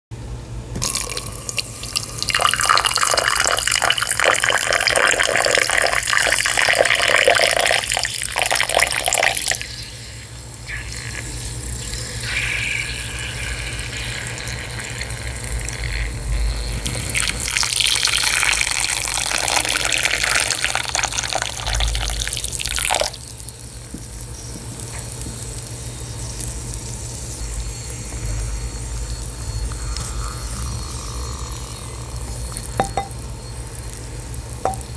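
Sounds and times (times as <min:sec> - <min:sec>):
water pouring from kettle: 0:00.8 - 0:10.0, 0:10.7 - 0:16.0, 0:16.8 - 0:23.2.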